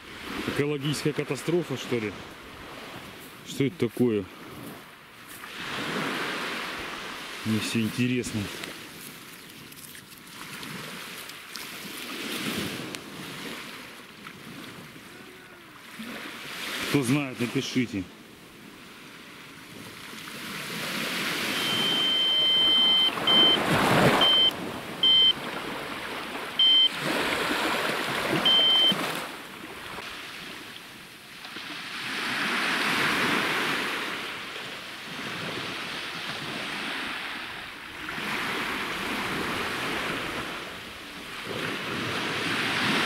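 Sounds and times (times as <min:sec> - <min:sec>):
sea waves washing onto sand: 0:00.0 - 0:43.0
fishing bite alarm beeps: 0:21.4 - 0:25.4, 0:26.6 - 0:27.1, 0:28.3 - 0:29.2.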